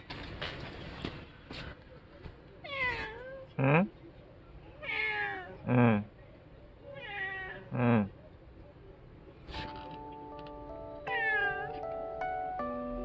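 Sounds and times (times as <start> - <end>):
cat meowing: 2.6 - 3.5, 4.8 - 5.6, 6.9 - 7.7, 11.1 - 11.7.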